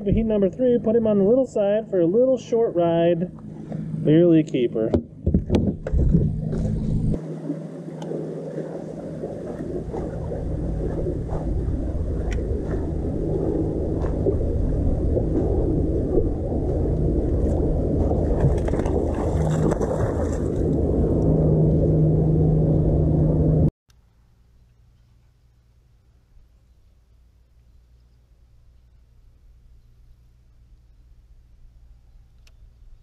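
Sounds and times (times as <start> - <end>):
water lapping: 0.0 - 4.6, 5.4 - 22.3
low rumble of wind: 0.0 - 33.0
low steady hum: 0.0 - 33.0.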